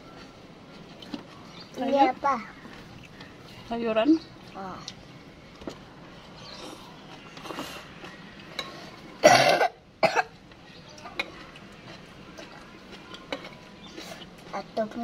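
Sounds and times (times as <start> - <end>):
woman coughing: 9.2 - 10.3.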